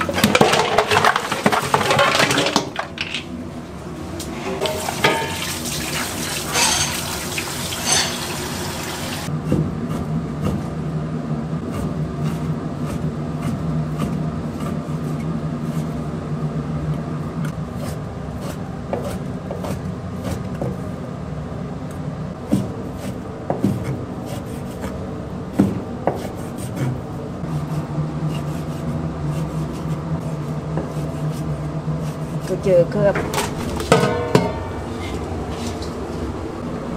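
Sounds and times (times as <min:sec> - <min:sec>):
steady low hum: 0:02.7 - 0:06.4, 0:09.2 - 0:36.9
water pouring from hose: 0:04.8 - 0:09.3.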